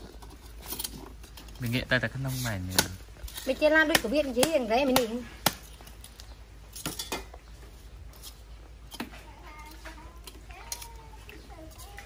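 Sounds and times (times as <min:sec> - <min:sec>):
metal tongs clinking on charcoal: 0:05.9 - 0:07.4, 0:08.1 - 0:12.0.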